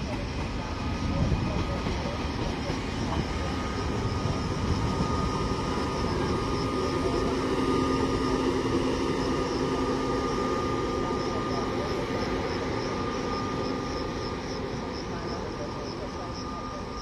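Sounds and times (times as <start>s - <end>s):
electric locomotive hum: 0.0s - 17.0s
train wheels rumbling on track: 0.0s - 17.0s.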